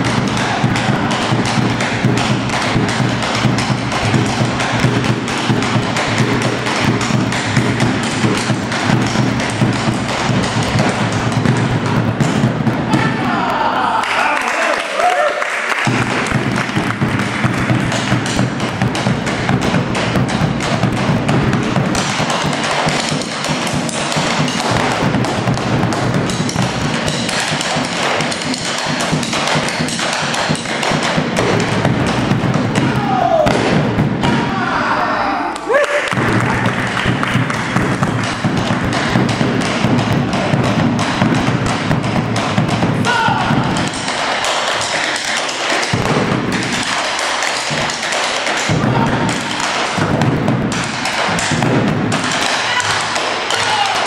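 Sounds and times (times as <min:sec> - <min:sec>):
drums beaten with sticks: 0:00.0 - 0:14.0, 0:15.8 - 0:54.0
sharp wooden taps: 0:36.1 - 0:54.0.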